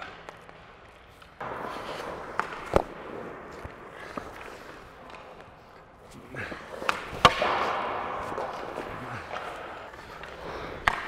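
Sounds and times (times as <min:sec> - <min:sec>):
skate blades scraping ice: 0:00.0 - 0:11.0
hockey puck knock: 0:01.4 - 0:05.5, 0:06.8 - 0:11.0.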